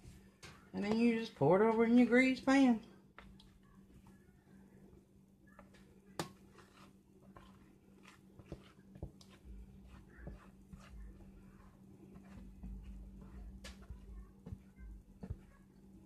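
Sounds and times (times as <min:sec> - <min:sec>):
low steady hum: 0:00.0 - 0:16.0
soft low rumble: 0:08.4 - 0:16.0.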